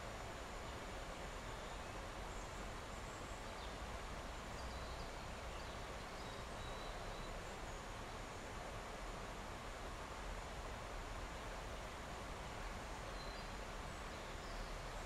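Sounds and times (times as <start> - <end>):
thin steady high insect tone: 10.4 - 15.0.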